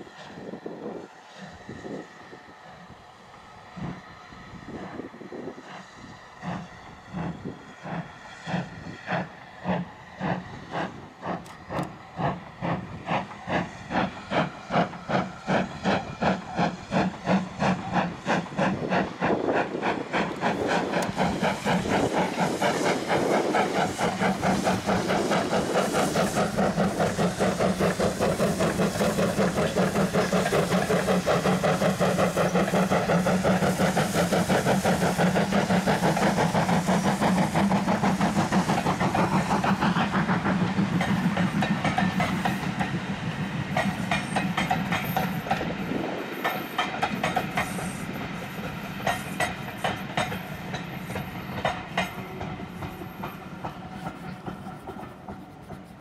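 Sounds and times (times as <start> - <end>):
steam hissing: 0.0 - 56.0
steam locomotive chuffing: 0.0 - 56.0.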